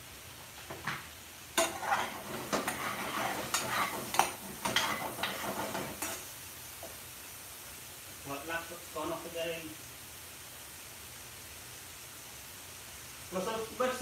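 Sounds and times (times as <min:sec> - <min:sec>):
metal ladle scraping frying pan: 0:01.6 - 0:06.3.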